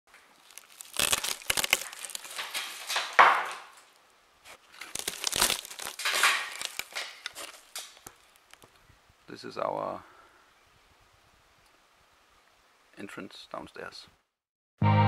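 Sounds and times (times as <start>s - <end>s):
debris crunch: 0.1s - 8.7s
insulation crackling and tearing: 0.1s - 8.8s.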